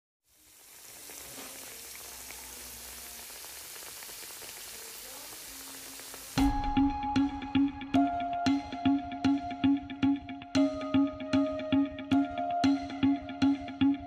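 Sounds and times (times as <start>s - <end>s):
hot oil sizzling: 0.2s - 7.3s
music: 6.3s - 14.0s.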